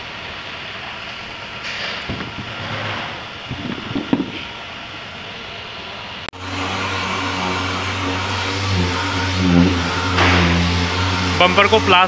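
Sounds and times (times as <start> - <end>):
orbital sander on plastic: 6.4 - 12.0.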